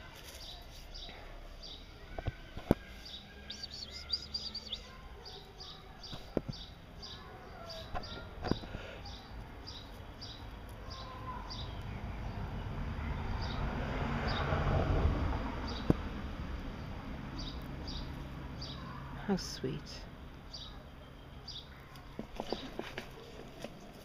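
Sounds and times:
rustling noise: 0.0s - 1.6s, 22.2s - 24.0s
small bird chirping: 0.2s - 12.4s.

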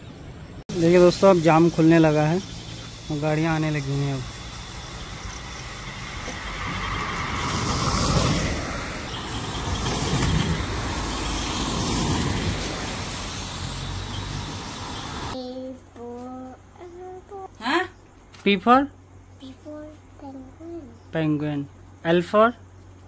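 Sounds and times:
cars passing on wet road: 4.2s - 15.4s.

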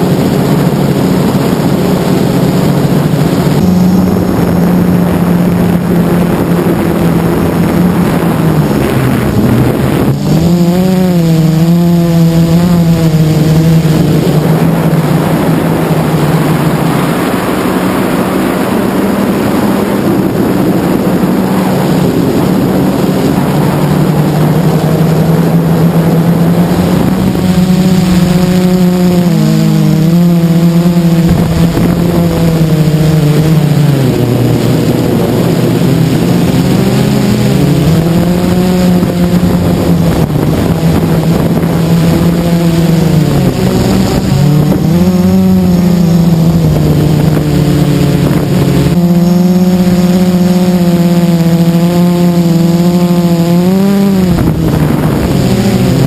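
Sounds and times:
quadcopter motors buzzing: 0.0s - 56.0s
wind noise on microphone: 0.0s - 56.0s.

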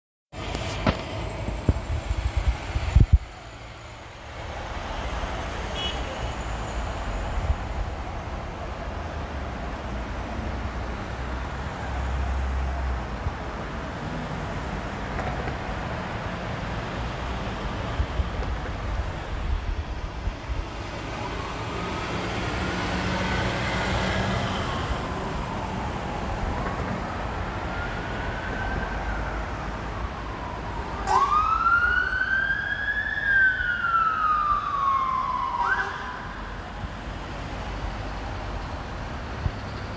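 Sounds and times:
engine and traffic rumble: 0.3s - 39.9s
fire engine siren wailing: 20.6s - 36.9s.

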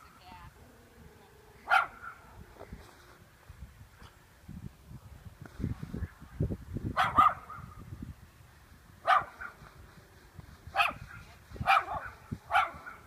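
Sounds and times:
dog barking: 1.6s - 2.2s, 7.0s - 7.7s, 9.1s - 9.6s, 10.8s - 11.0s, 11.6s - 13.0s.

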